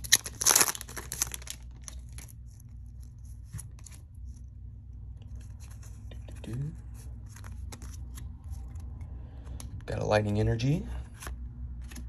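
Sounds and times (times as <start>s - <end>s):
foil wrapper crinkling: 0.0s - 4.0s
steady low hum: 0.0s - 12.0s.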